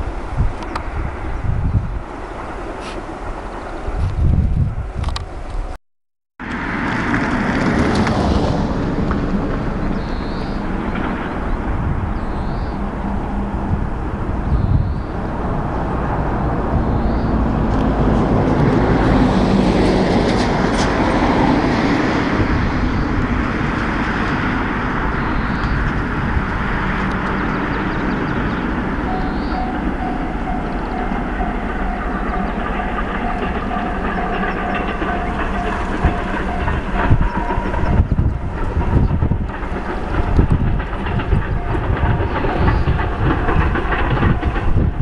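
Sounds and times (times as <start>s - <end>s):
train rumbling on rails: 0.0s - 5.8s, 6.4s - 45.0s
steady high tone: 28.9s - 39.0s.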